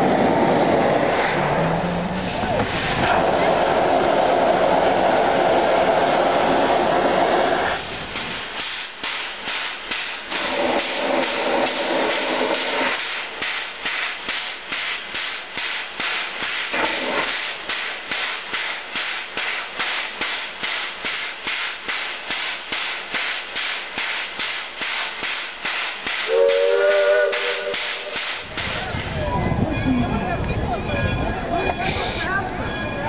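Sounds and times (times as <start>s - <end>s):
steam locomotive chuffing: 0.0s - 33.0s
hiss of escaping steam: 2.0s - 29.2s
steam whistle: 26.2s - 28.4s.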